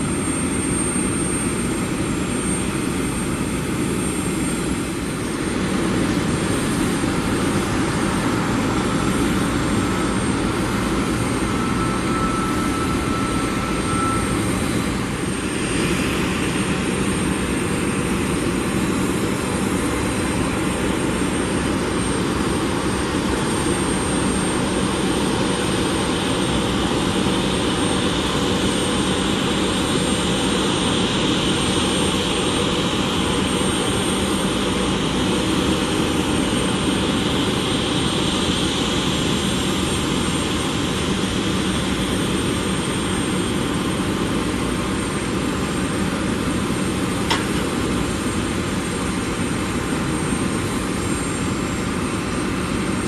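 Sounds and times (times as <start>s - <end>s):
jet engines idling: 0.0s - 53.0s
brief click: 47.3s - 47.6s.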